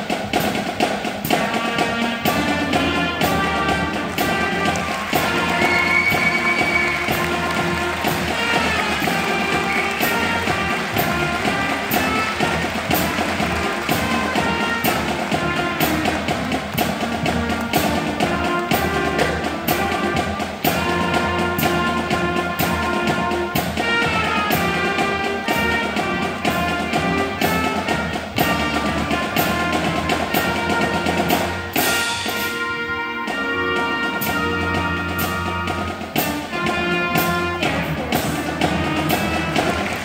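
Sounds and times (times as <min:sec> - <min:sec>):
concert band playing march: 0:00.0 - 0:40.0
drums keeping march beat: 0:00.0 - 0:40.0.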